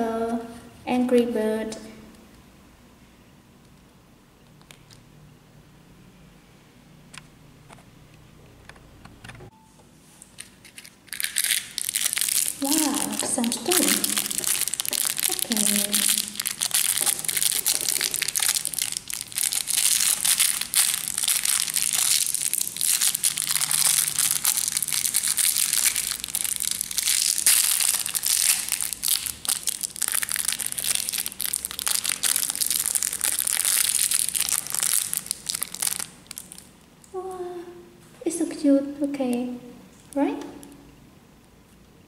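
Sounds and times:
plastic bag crinkling: 10.2 - 37.0.

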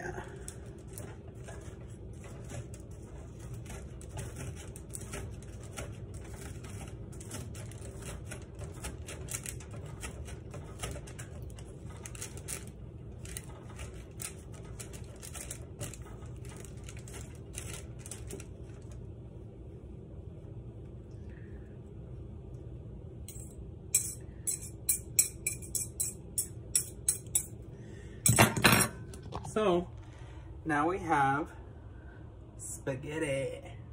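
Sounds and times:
utensil scraping squash: 0.0 - 18.5.

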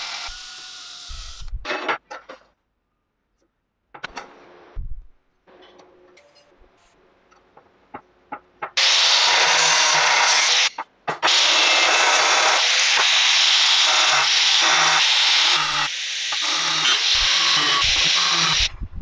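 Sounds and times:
angle grinder cutting steel: 8.8 - 18.7.

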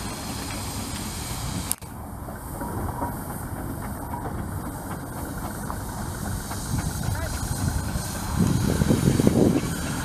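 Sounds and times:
steam engine rumble with hiss: 0.0 - 10.0.

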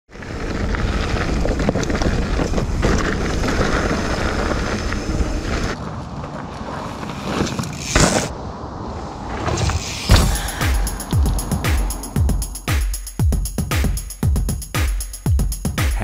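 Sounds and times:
bike tyre noise on dirt: 0.1 - 12.7
bike clicks and rattles: 0.2 - 8.3.

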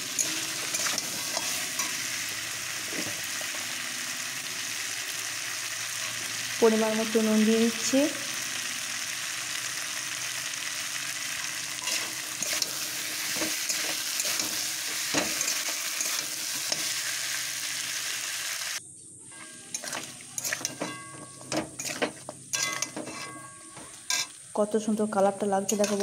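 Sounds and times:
meat and potatoes sizzling in pan: 0.0 - 18.8, 19.6 - 24.4, 25.7 - 26.0
spatula scraping and clicking on pan: 0.1 - 2.1, 19.3 - 24.4, 25.7 - 26.0.

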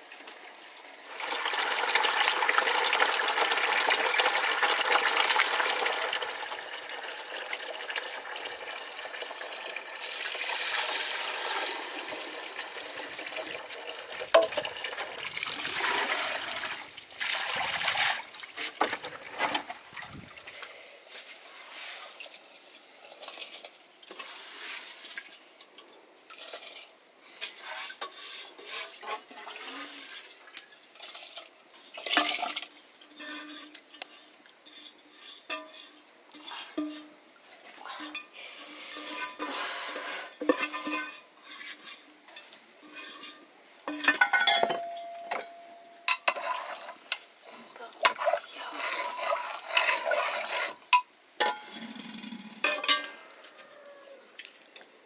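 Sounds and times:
metal bowl and pot clinking: 31.0 - 37.2, 38.0 - 46.9, 49.0 - 53.3
metal ladle stirring in pot: 32.0 - 37.2, 38.0 - 44.7, 46.1 - 47.0, 48.0 - 53.1.

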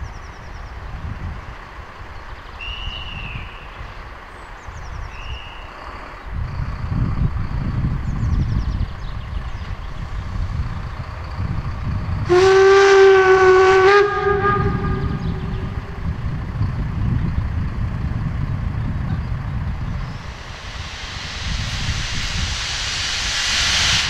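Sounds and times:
steam locomotive whistle: 12.3 - 15.8.

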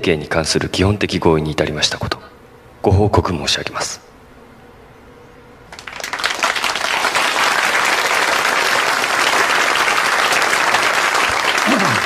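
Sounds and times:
crowd applauding: 5.7 - 12.0.

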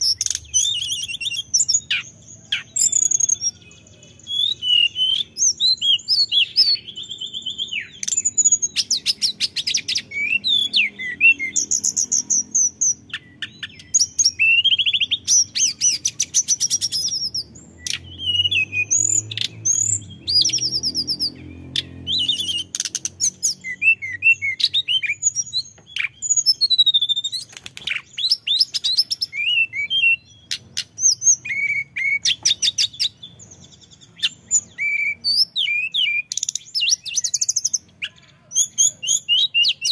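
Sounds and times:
bird singing whistled trills: 0.0 - 39.9.

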